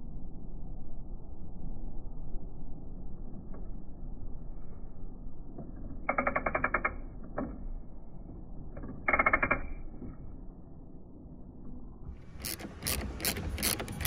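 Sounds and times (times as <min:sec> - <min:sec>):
hand ratchet clicking: 0:09.1 - 0:09.8, 0:12.3 - 0:14.0.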